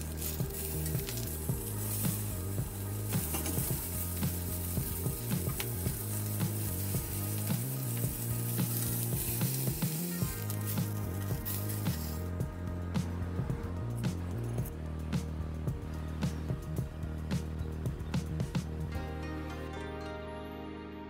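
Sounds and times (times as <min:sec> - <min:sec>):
fish sizzling on grill pan: 0:00.0 - 0:12.4.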